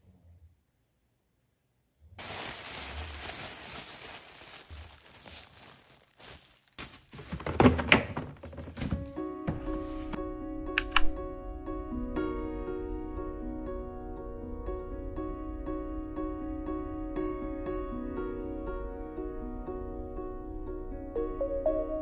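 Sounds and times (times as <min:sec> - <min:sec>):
plastic bag crinkling and rustling: 0:02.2 - 0:09.2.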